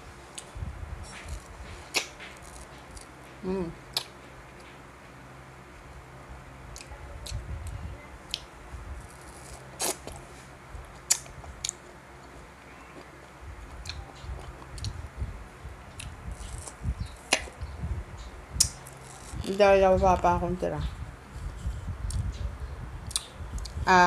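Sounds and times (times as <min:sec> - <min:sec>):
wet biting and chewing: 0:01.1 - 0:03.1, 0:03.9 - 0:04.2, 0:08.3 - 0:10.3, 0:11.1 - 0:11.8, 0:13.0 - 0:15.0, 0:15.9 - 0:17.5, 0:23.1 - 0:23.8
mouth clicks: 0:23.0 - 0:23.8.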